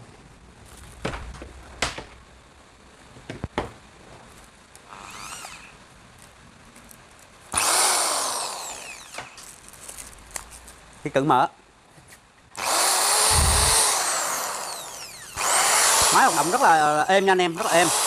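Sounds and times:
drill motor whirring: 0:04.9 - 0:05.8, 0:07.5 - 0:09.4, 0:12.6 - 0:18.0.

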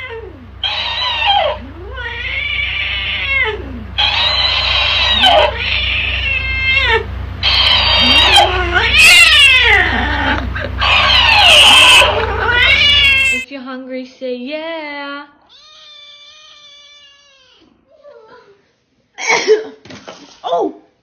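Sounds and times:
cat yowling: 0:00.0 - 0:13.5.

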